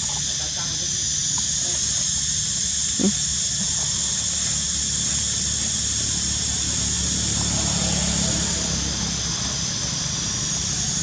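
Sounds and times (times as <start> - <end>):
steady high hiss: 0.0 - 11.0
macaque call: 2.8 - 4.3.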